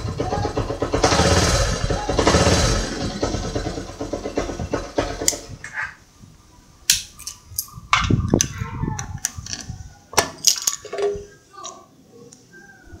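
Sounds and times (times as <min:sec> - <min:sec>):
motorcycle engine idling: 0:00.0 - 0:05.6.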